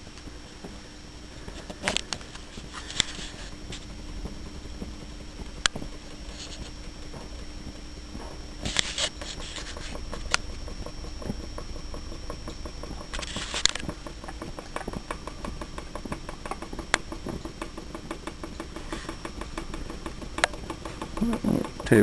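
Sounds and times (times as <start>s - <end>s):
engine parts ticking rapidly: 9.8s - 22.0s.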